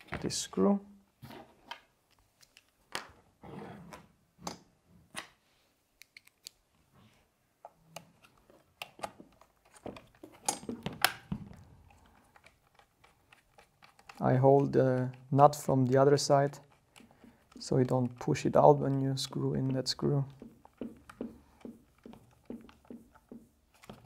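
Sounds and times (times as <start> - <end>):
clicks of small parts handled: 1.6 - 3.1, 6.0 - 6.6
screw being screwed in: 11.8 - 15.7.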